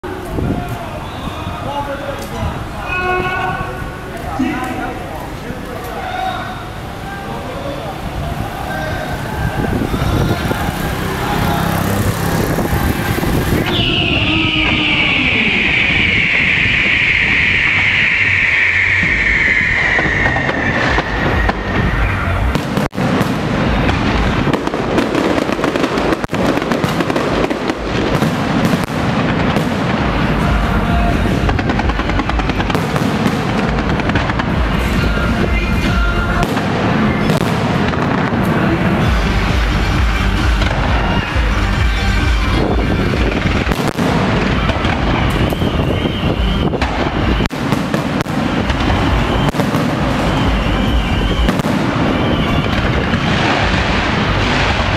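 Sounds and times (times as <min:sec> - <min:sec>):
fireworks banging and crackling: 0:03.6 - 0:54.9
shrill tone falling in pitch: 0:13.7 - 0:22.4.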